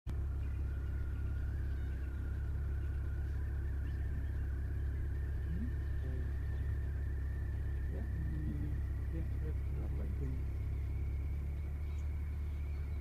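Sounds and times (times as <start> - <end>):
engine idling rumble: 0.1 - 13.0
faint thin steady whine: 0.1 - 13.0.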